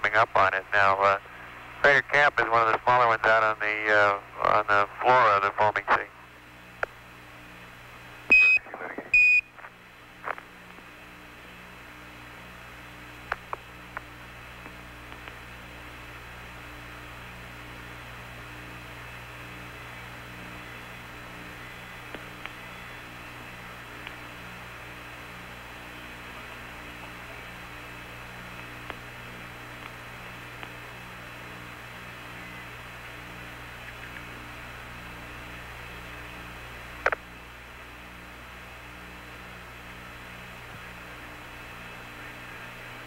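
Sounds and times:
burst of radio noise: 0.0 - 6.1, 8.3 - 9.4
radio channel hiss and hum: 0.0 - 43.0
short high radio beeps: 8.3 - 9.5
faint clicks: 13.3 - 15.4, 33.8 - 34.3.

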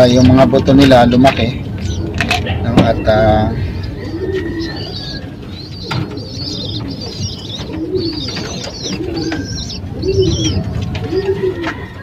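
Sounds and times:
pigeons cooing: 0.0 - 12.0
high squeaky bird calls: 3.8 - 10.7.

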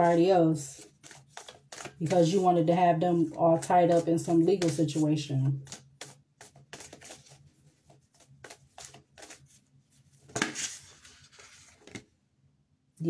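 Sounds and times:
cards rustling: 0.0 - 2.5, 3.1 - 5.0, 5.6 - 12.1
cards shuffling clicks: 0.8 - 2.4, 5.6 - 9.6, 10.2 - 12.1.

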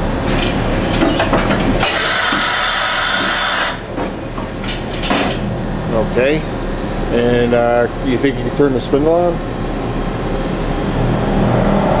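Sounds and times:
machine humming: 0.0 - 12.0
loud hiss of air: 1.8 - 3.9.

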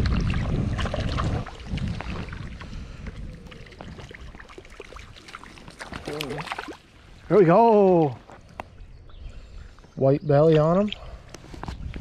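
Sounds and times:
wind buffeting microphone: 0.0 - 4.4, 8.6 - 12.0
water lapping in stream: 0.0 - 12.0.

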